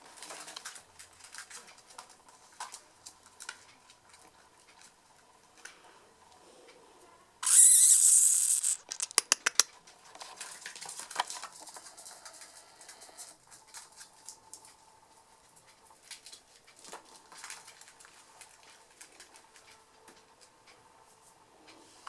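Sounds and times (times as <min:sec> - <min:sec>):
sharp clicks: 0:07.4 - 0:09.7
puppy claws ticking on floor: 0:08.8 - 0:14.8.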